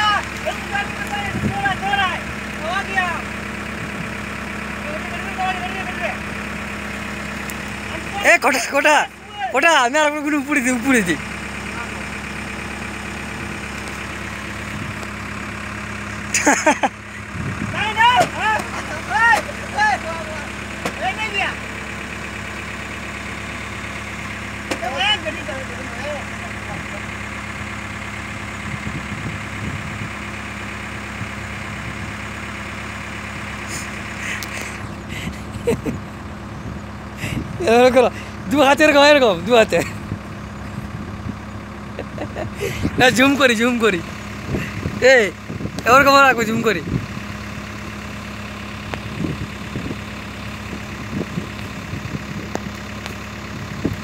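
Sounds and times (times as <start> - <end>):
diesel engine idling: 0.0 - 54.0
faint clicks: 34.4 - 34.8.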